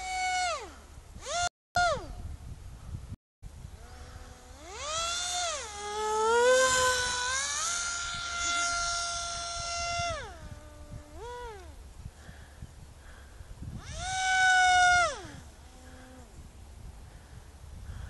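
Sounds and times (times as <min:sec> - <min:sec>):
model plane motor whining: 0:00.0 - 0:02.1, 0:03.8 - 0:11.8, 0:13.7 - 0:16.4.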